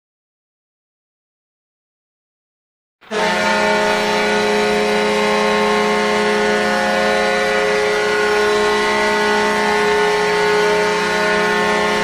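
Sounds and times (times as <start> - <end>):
ice hockey goal horn blast: 3.0 - 12.0.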